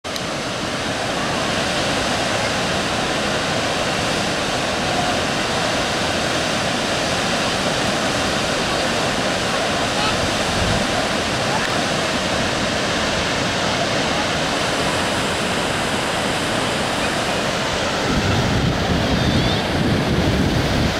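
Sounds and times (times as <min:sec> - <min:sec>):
waterfall rushing: 0:00.1 - 0:20.9.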